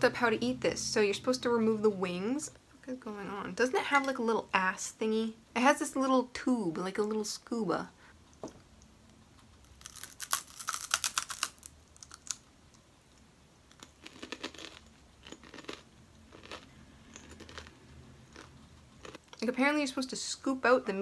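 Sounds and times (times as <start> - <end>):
dry insect shell crackling: 9.6 - 12.4.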